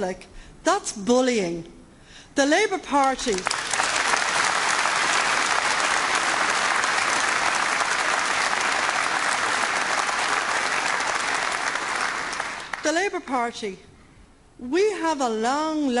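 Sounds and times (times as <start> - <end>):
audience applauding: 3.3 - 12.8.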